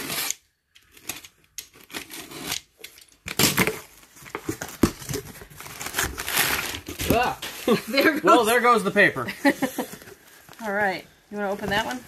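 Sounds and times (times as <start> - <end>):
knife slicing packing tape: 0.0 - 0.4
cardboard and paper rustling: 3.4 - 12.0.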